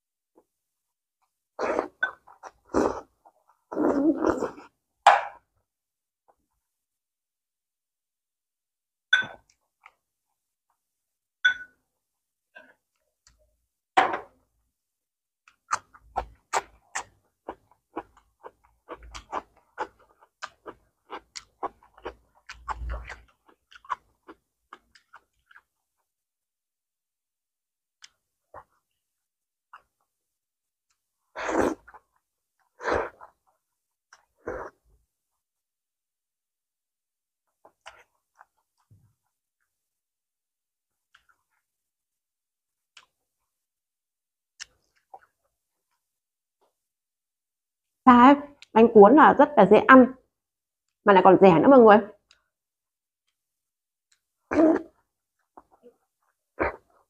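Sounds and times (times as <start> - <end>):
metal spoon clinking glass bowl: 11.5 - 11.7.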